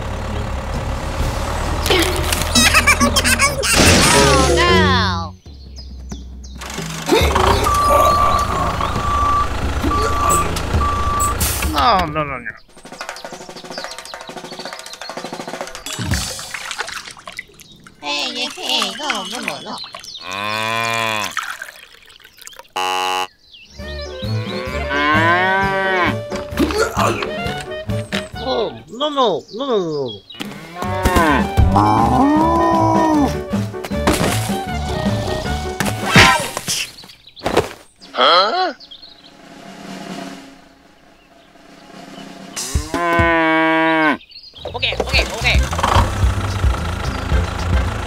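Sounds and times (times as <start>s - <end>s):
music: 1.2s - 8.1s, 23.7s - 28.8s, 30.9s - 36.1s, 39.2s - 43.3s, 45.1s - 48.0s
short electronic beep: 7.6s - 11.5s
cow mooing: 20.2s - 21.4s, 24.5s - 26.3s, 30.5s - 32.5s, 42.8s - 44.2s.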